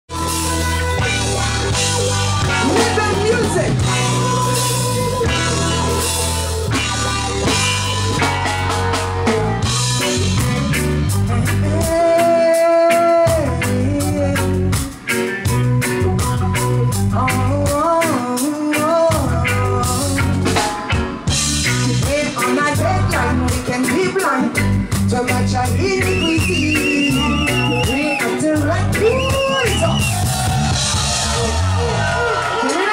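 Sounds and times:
live reggae band playing: 0.1 - 32.9
woman singing: 11.3 - 14.6, 17.1 - 20.6, 21.8 - 29.3.

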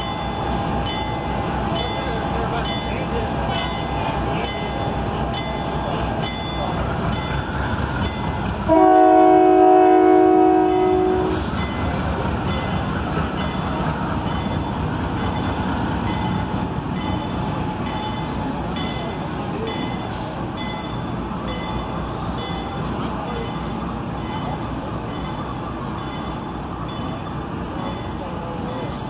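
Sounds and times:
diesel locomotive engine running: 0.0 - 29.0
locomotive air horn blast: 8.7 - 11.5.

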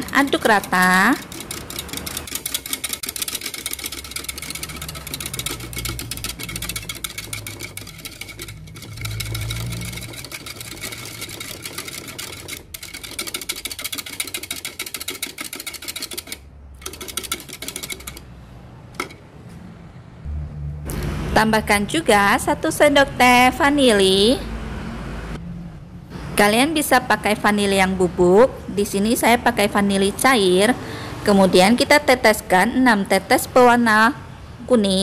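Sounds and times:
whisk clicking against plastic jug: 0.0 - 18.2.

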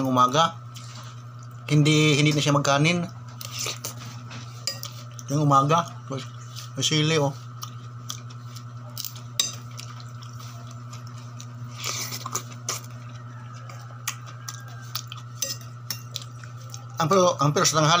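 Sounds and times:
spoon clinking on a plate: 4.6 - 5.2, 15.0 - 16.4.

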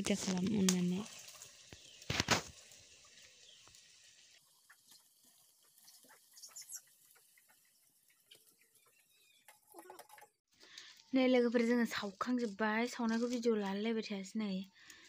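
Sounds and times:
dough frying in hot oil: 0.0 - 10.4
faint high chirps: 6.2 - 6.9.

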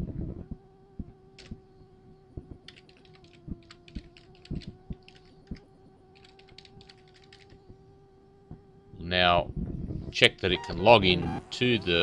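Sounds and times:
faint steady hum: 0.0 - 12.0
keyboard typing: 2.7 - 5.6, 6.2 - 7.6.

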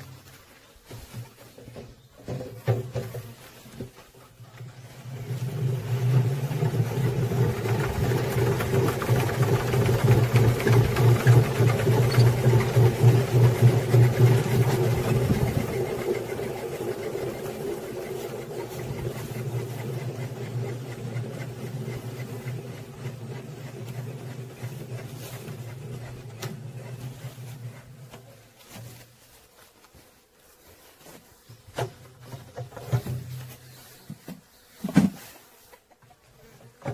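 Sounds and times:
honey extractor motor whirring: 4.4 - 28.4.

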